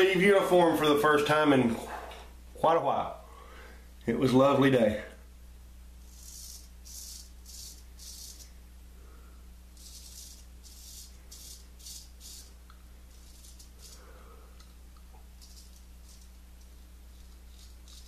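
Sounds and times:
razor scraping stubble: 6.1s - 8.5s, 9.8s - 14.1s, 15.4s - 18.0s.

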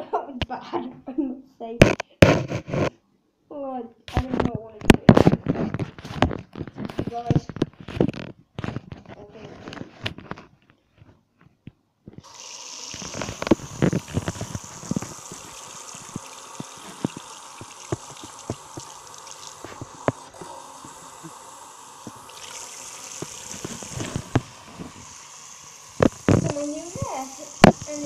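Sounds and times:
tap water splashing on hair: 12.2s - 28.0s.

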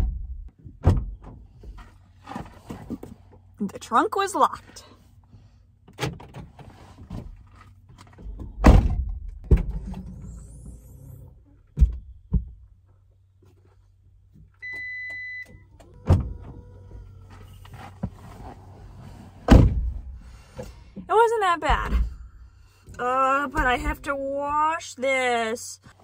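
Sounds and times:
car doors thunking shut: 0.0s - 1.4s, 8.5s - 9.9s, 15.5s - 18.3s, 19.4s - 20.2s
low steady rumble: 15.4s - 25.5s.

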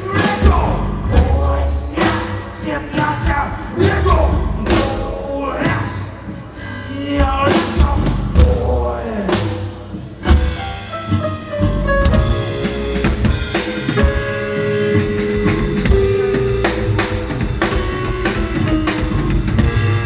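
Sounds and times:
drums and cymbals: 0.0s - 20.0s
heavy low thumps: 10.0s - 20.0s.

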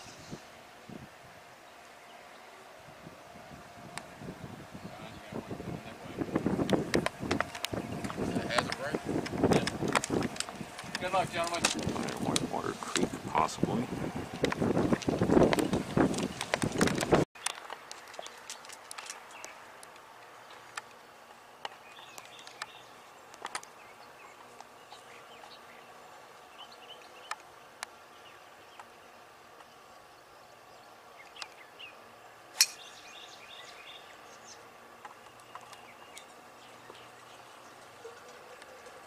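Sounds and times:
golf club striking ball: 32.6s - 32.9s.

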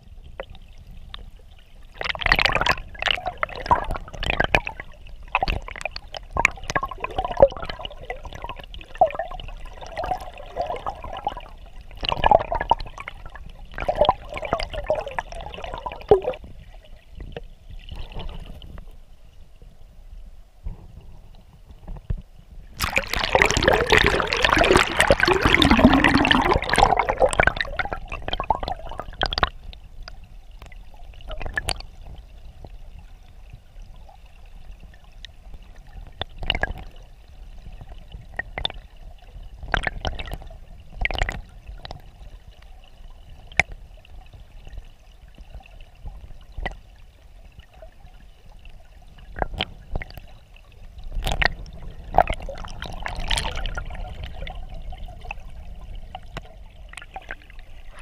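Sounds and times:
turbulent water rushing underwater: 0.0s - 17.2s, 22.7s - 42.6s, 49.1s - 58.0s.

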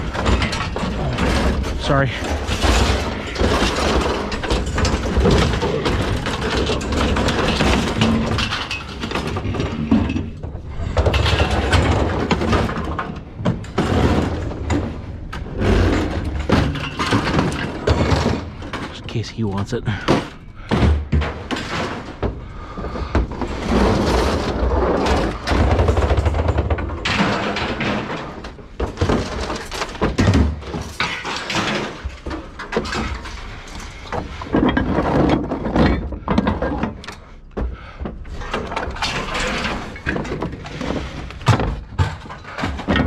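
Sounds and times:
scrap metal clanking and thudding: 0.0s - 43.0s.

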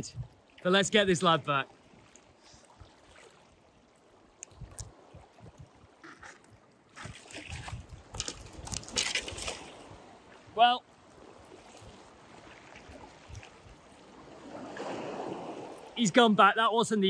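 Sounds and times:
seawater splashing on rocks: 6.0s - 10.1s.

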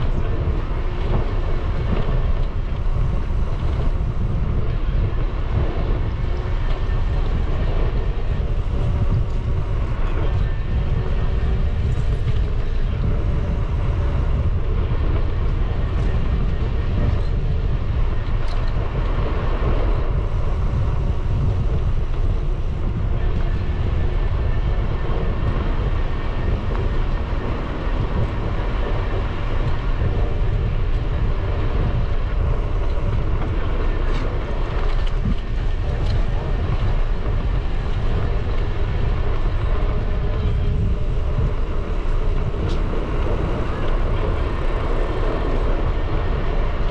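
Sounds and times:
wind buffeting microphone: 0.0s - 46.9s
bicycle tyres hissing on path: 17.1s - 46.9s.

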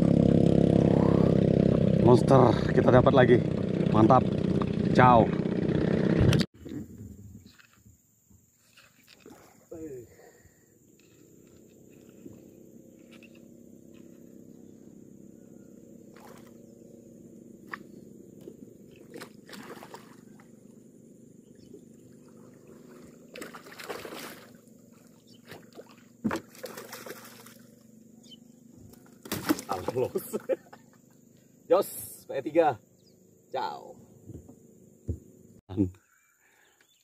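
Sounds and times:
fish thrashing and splashing: 19.0s - 20.4s, 22.2s - 27.8s, 29.0s - 30.2s.

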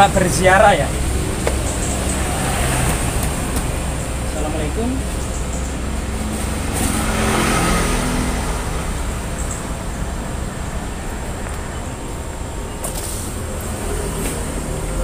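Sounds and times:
road traffic rumble: 0.0s - 15.0s
vehicle passing: 0.0s - 15.0s.

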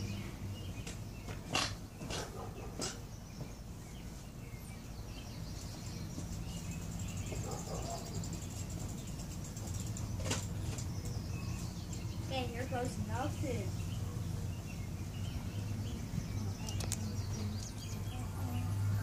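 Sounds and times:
insect-like trill: 6.7s - 10.4s
sharp clicks: 16.6s - 17.8s.

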